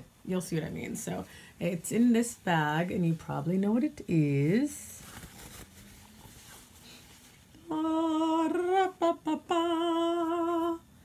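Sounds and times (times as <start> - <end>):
woman humming: 7.6 - 10.8.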